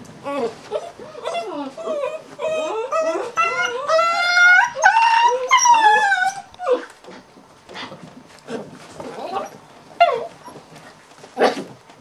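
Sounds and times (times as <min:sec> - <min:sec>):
puppy whining and crying: 0:00.2 - 0:07.2, 0:08.5 - 0:10.8.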